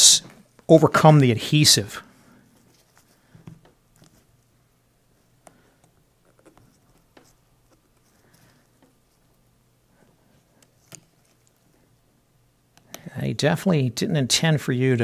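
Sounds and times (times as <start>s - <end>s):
faint scratching: 5.1s - 12.0s.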